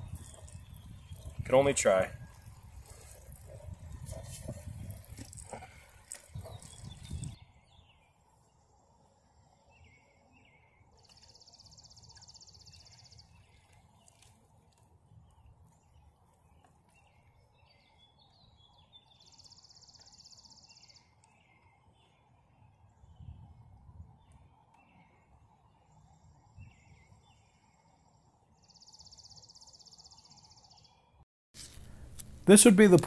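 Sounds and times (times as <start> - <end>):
bird chirps: 0.0 - 8.2, 15.3 - 23.4.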